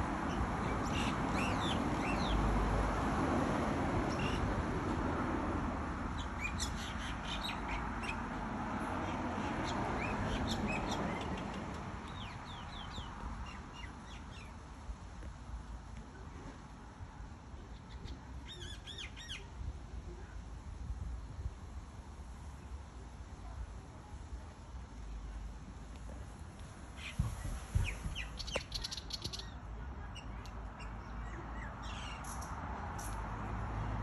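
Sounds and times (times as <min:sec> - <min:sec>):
birds chirping: 0:27.0 - 0:32.6.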